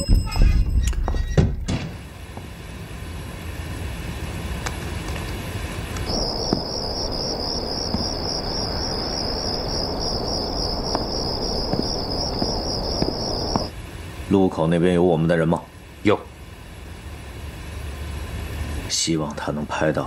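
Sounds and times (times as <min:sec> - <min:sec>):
low background rumble: 0:00.0 - 0:20.0
crickets chirping: 0:06.0 - 0:13.8.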